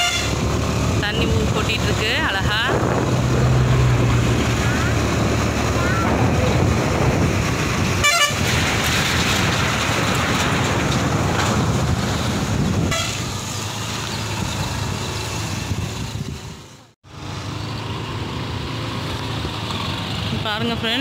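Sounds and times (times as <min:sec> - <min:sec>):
vehicle horn toots: 0:00.0 - 0:00.4, 0:08.0 - 0:08.5, 0:12.9 - 0:13.3
wind noise: 0:00.0 - 0:16.8
motorcycle engine: 0:00.0 - 0:21.0.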